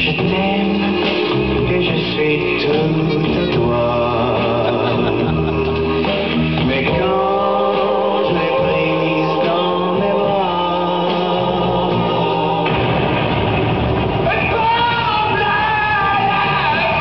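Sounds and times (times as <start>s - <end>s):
man singing: 0.0s - 6.0s, 6.6s - 12.8s
instrumental backing: 0.0s - 17.0s.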